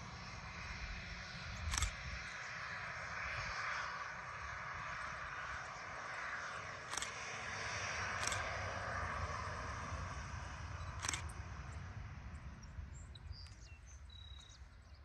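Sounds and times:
distant jet noise: 0.0s - 15.0s
sharp click: 1.6s - 2.0s, 8.2s - 8.5s, 11.0s - 11.4s
birds chirping: 12.3s - 15.0s.

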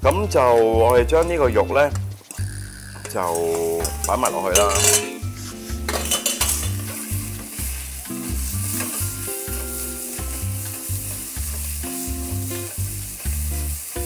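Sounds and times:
meat sizzling in oil: 2.3s - 14.0s
spatula stirring in a pan: 4.7s - 13.4s.

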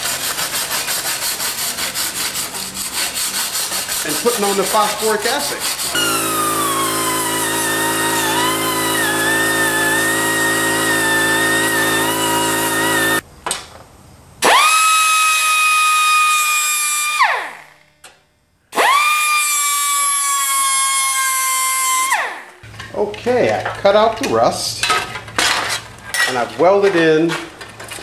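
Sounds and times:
pneumatic abrasive tool whining: 5.7s - 13.2s, 14.4s - 17.5s, 18.7s - 22.3s
air grinder high whine: 5.9s - 13.2s, 18.8s - 22.3s.

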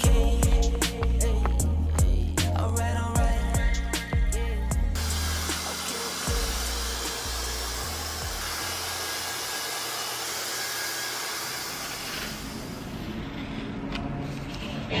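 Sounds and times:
background music bass: 0.0s - 9.0s
hair dryer blowing: 5.0s - 13.2s.

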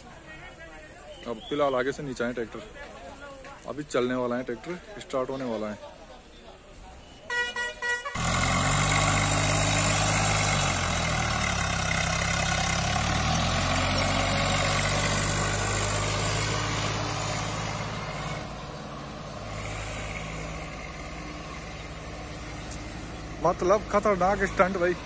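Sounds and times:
tractor diesel engine under load: 8.1s - 25.0s.

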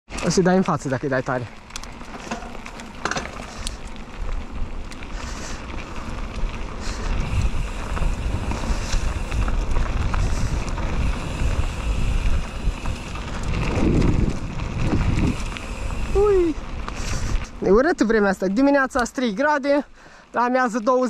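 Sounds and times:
bike clicks on trail: 0.1s - 21.0s
wind buffeting microphone: 3.3s - 19.0s.

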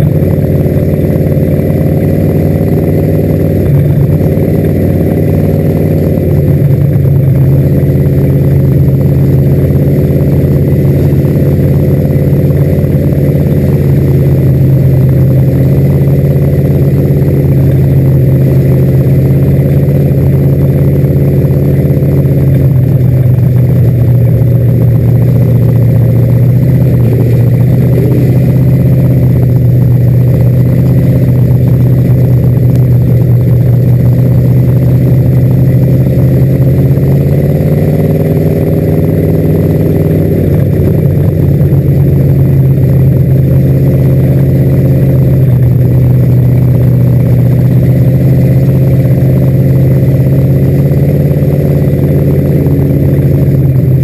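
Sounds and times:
race car engine running: 0.0s - 54.0s.

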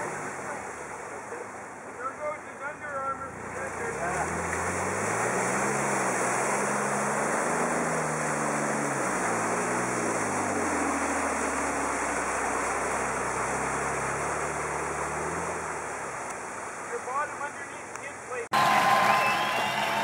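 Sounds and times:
muddy water splashing: 0.0s - 20.0s
car engine revving: 3.0s - 17.0s.

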